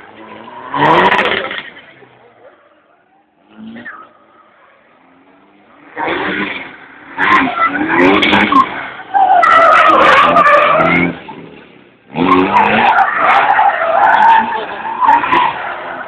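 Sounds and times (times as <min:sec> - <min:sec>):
car engine at high revs: 0:00.0 - 0:16.0
tyres squealing: 0:07.2 - 0:11.2, 0:12.2 - 0:16.0.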